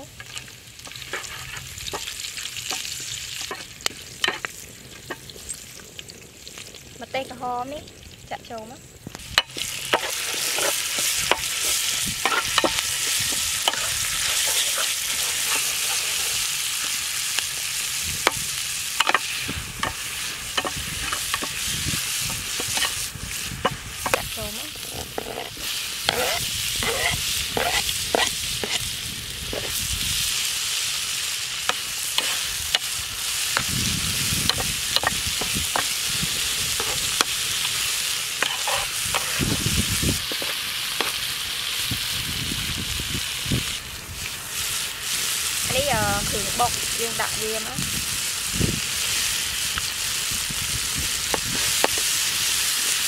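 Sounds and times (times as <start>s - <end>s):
food sizzling in oil: 0.0s - 53.0s
metal spatula scraping pan: 0.9s - 2.1s, 9.4s - 16.5s, 24.8s - 28.8s, 36.7s - 37.4s, 38.4s - 39.5s.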